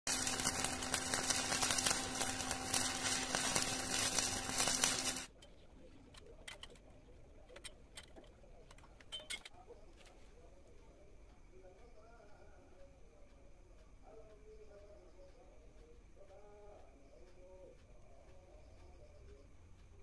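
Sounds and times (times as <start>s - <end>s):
welding arc crackling: 0.0s - 5.4s
faint steady hum: 0.1s - 20.0s.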